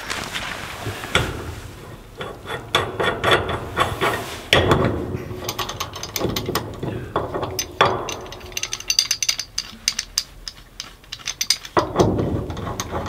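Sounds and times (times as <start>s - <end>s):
wrench metallic clicks: 5.4s - 13.0s.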